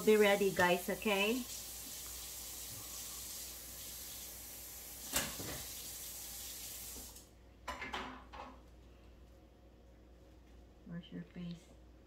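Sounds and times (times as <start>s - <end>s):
steady hiss: 0.0s - 7.3s.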